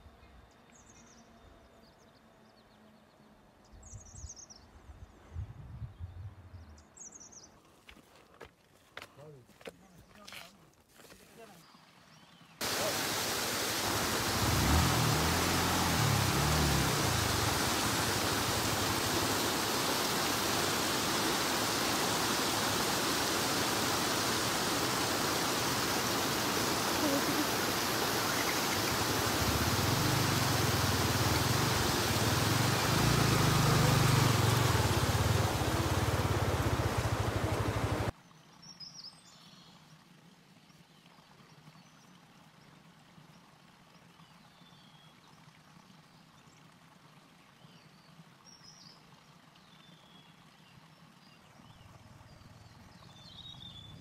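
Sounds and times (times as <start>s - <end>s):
rushing stream water: 11.6s - 38.2s
motorcycle engine running: 13.8s - 19.7s, 25.8s - 38.1s.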